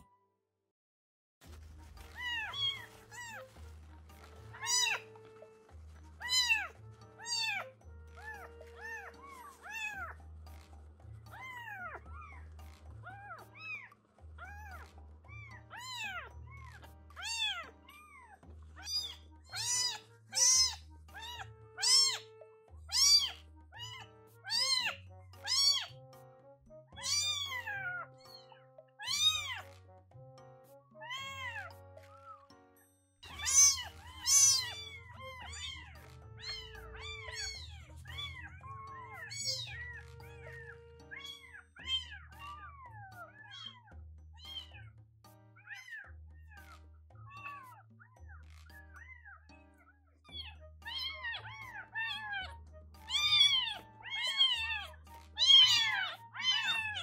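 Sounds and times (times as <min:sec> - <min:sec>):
background music: 0:01.4 - 0:57.0
kitten mewing: 0:04.5 - 0:05.4, 0:06.2 - 0:10.2, 0:15.4 - 0:22.3, 0:22.9 - 0:25.9, 0:27.0 - 0:28.1, 0:29.0 - 0:29.7, 0:33.2 - 0:44.8, 0:53.1 - 0:57.0.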